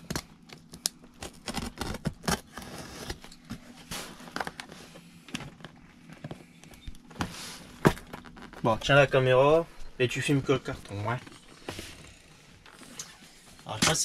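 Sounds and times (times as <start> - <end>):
box cutter scraping cardboard: 1.4 - 3.2.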